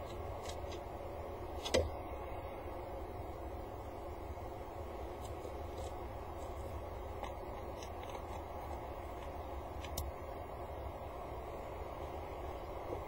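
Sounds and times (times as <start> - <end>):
steady low hum: 0.0 - 13.0
gravel pebbles clicking: 5.2 - 10.1.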